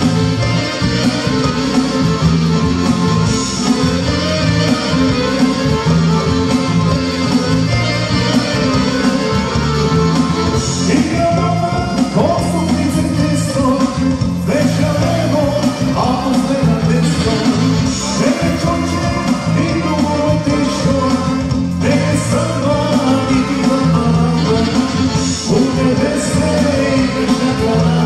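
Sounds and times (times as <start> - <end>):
keyboard playing dance song: 0.0 - 28.0
man singing: 10.5 - 28.0.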